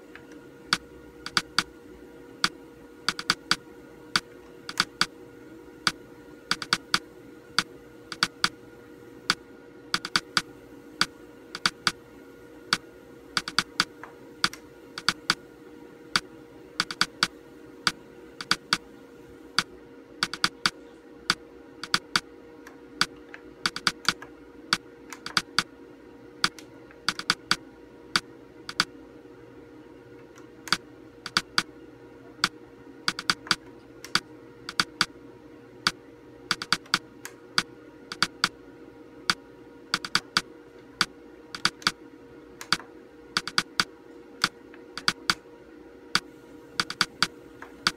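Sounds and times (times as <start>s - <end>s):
steady hum: 0.0s - 47.9s
monitor buttons clicking: 0.7s - 1.7s, 2.4s - 3.6s, 4.7s - 5.1s, 6.5s - 7.0s, 8.1s - 8.6s, 10.0s - 10.5s, 11.6s - 12.0s, 13.4s - 15.4s, 16.8s - 17.3s, 18.4s - 18.8s, 20.2s - 20.8s, 21.8s - 22.2s, 23.1s - 24.3s, 25.1s - 25.7s, 26.4s - 27.6s, 30.7s - 31.7s, 33.1s - 35.1s, 36.5s - 37.0s, 38.1s - 38.5s, 40.0s - 40.4s, 41.6s - 42.0s, 43.4s - 43.9s, 45.0s - 45.4s, 46.8s - 47.9s.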